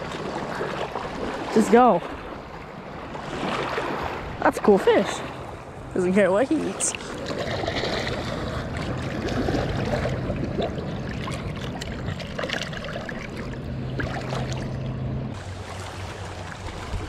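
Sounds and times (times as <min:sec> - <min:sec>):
low steady hum: 0:04.3 - 0:17.0
water splashing around rocks: 0:06.6 - 0:17.0.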